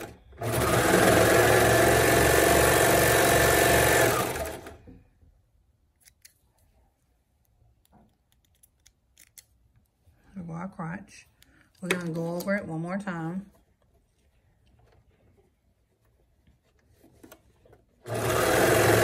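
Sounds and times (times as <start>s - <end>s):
serger machine stitching: 0.0s - 4.8s, 18.0s - 19.0s.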